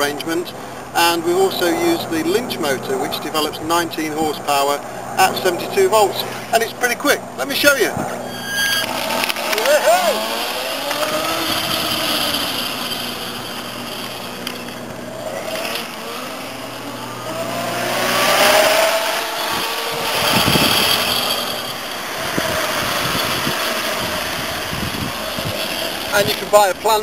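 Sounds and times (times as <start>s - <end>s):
electric motor whining: 8.2s - 27.0s.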